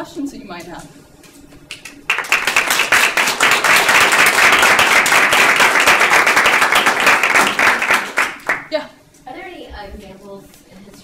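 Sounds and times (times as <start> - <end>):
audience applauding: 1.7 - 8.7.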